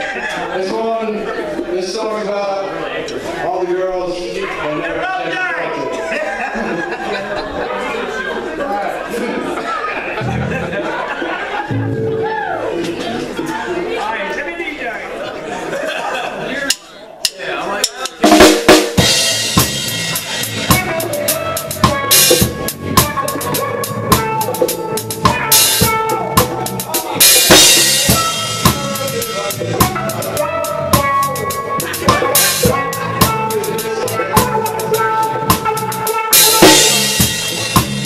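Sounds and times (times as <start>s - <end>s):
reggae band playing: 9.5s - 14.0s, 16.7s - 38.0s
drum kit beat: 11.7s - 12.9s, 16.7s - 38.0s.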